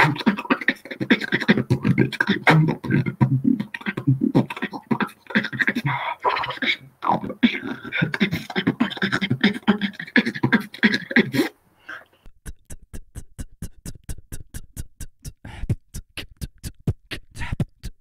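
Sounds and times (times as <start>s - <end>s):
beatboxing with pitched vocal line: 0.0s - 18.0s
sharp mouth clicks and kicks: 12.3s - 18.0s.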